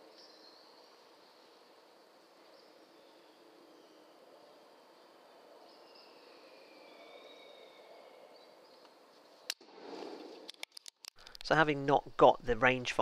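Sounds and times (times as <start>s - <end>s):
faint high chirps: 2.4s - 9.0s.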